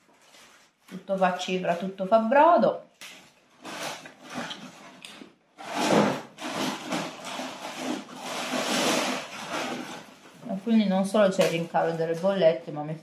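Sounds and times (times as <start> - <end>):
packaging rustling: 0.0 - 2.0, 3.1 - 10.5.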